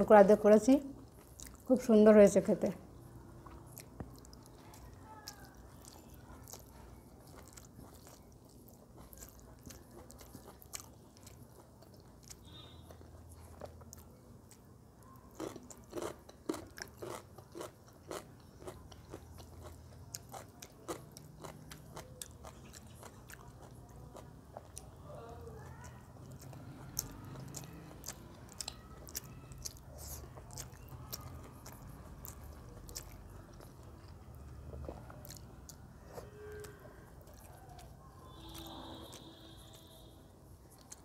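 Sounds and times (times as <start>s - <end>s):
person chewing with wet mouth clicks: 1.0s - 1.7s, 3.4s - 24.9s, 25.6s - 40.0s, 40.6s - 41.0s.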